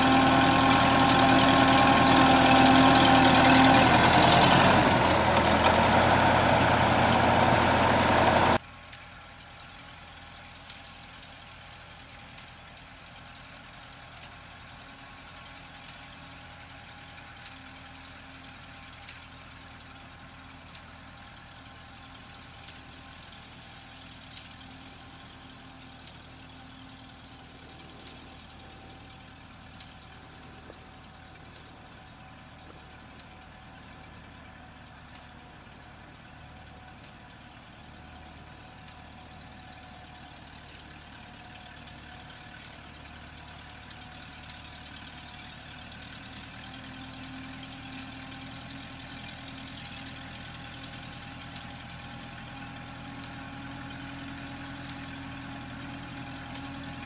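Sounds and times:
tractor engine running: 0:00.0 - 0:57.0
faint clicks: 0:24.0 - 0:33.7, 0:38.2 - 0:41.4, 0:43.8 - 0:48.8, 0:49.4 - 0:57.0.

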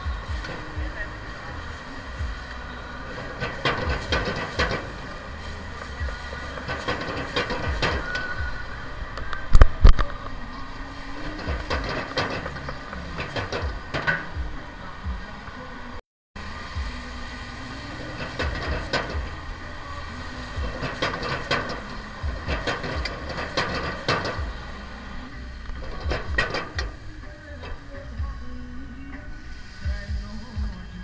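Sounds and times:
gas burner rumble and hiss: 0:00.0 - 0:31.0
metal ladle scraping a wok: 0:00.4 - 0:08.7, 0:11.0 - 0:14.4, 0:17.4 - 0:28.0.

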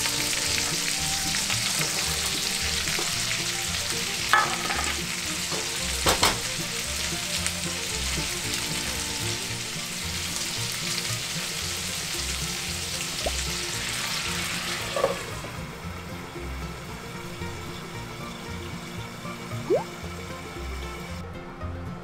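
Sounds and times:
food sizzling in frying pan: 0:00.0 - 0:21.2
spatula knocking on pan: 0:04.3 - 0:06.4.

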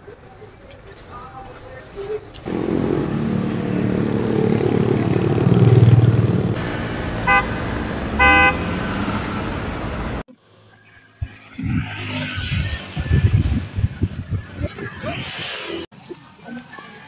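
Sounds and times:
road traffic passing: 0:02.3 - 0:15.9
passing vehicle rumble: 0:02.4 - 0:10.3
car horn toots: 0:06.6 - 0:10.2.

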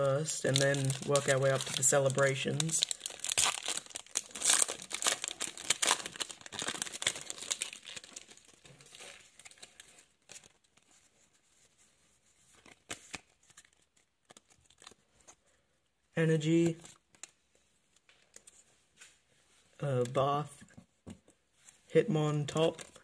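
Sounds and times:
foil wrapper crinkling and tearing: 0:00.4 - 0:10.6, 0:12.6 - 0:15.0.

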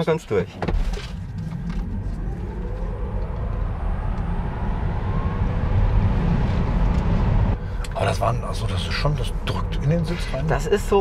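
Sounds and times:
road and tyre rumble: 0:00.2 - 0:11.0
electric motor whine: 0:01.1 - 0:07.6.

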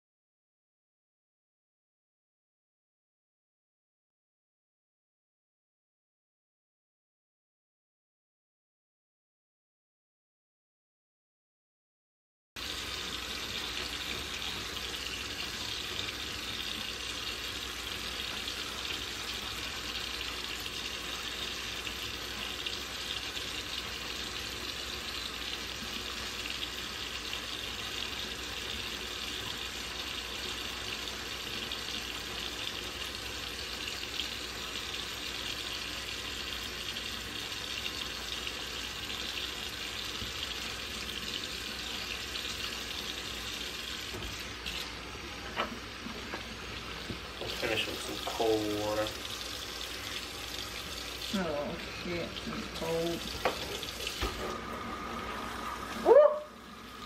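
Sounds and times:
faucet water splashing into sink: 0:12.6 - 0:57.0.

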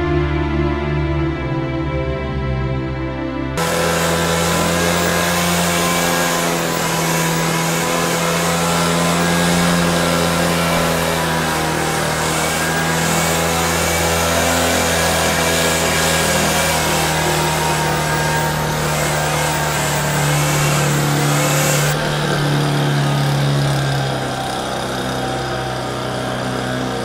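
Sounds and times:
leaf blower running: 0:03.6 - 0:27.0.

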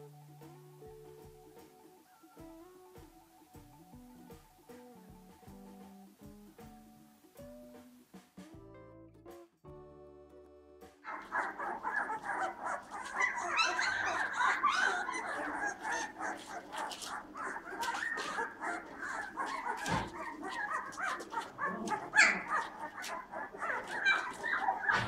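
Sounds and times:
puppies whining and yelping: 0:11.1 - 0:25.0.

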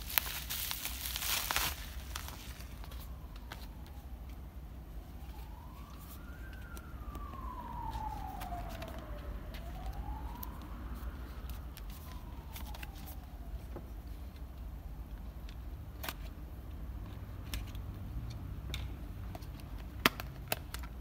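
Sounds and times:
cardboard box being handled: 0:00.0 - 0:03.9
siren wailing: 0:00.1 - 0:13.8.

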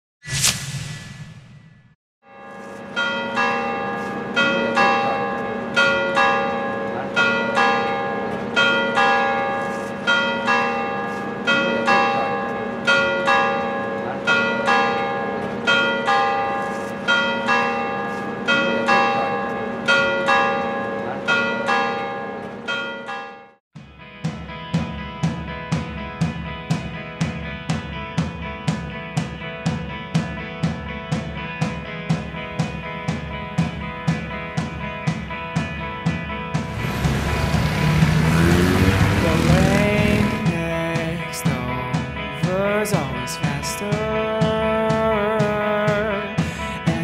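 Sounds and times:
church bells ringing a peal: 0:02.2 - 0:23.6.

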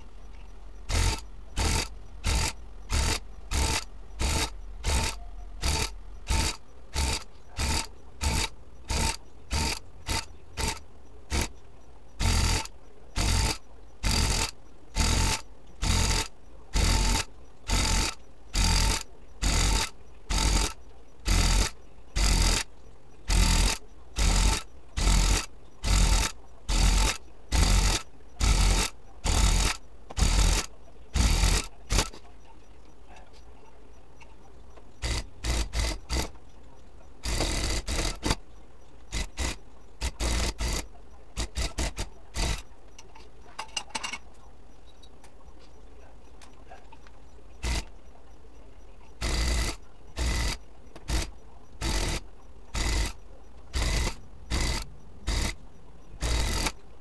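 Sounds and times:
electric tufting gun spurts: 0:00.9 - 0:11.5, 0:12.2 - 0:22.6, 0:23.3 - 0:32.1, 0:35.0 - 0:36.3, 0:39.1 - 0:40.8, 0:41.4 - 0:42.6, 0:47.6 - 0:47.9, 0:49.2 - 0:52.2, 0:52.8 - 0:55.6, 0:56.2 - 0:56.7.

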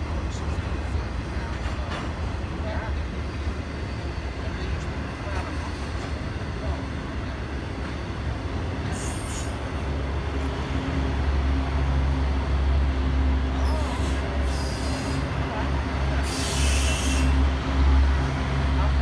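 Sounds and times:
train wheels rumbling on rail: 0:00.0 - 0:19.0
wheels hissing: 0:16.2 - 0:17.4.

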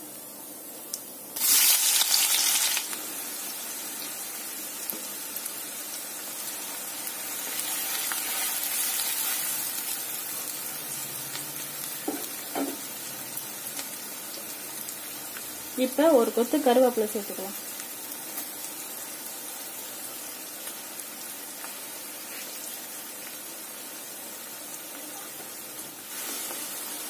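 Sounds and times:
onions sizzling in hot oil: 0:00.0 - 0:27.0.

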